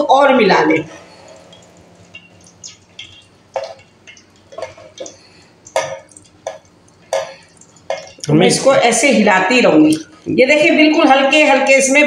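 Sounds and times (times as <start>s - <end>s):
metal spoon scraping a pan: 0.9s - 8.2s.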